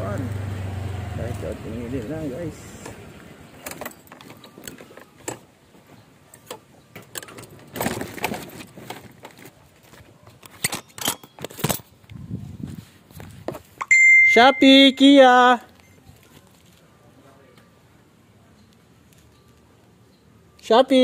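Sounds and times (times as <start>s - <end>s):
footsteps on pavement: 12.1s - 13.8s.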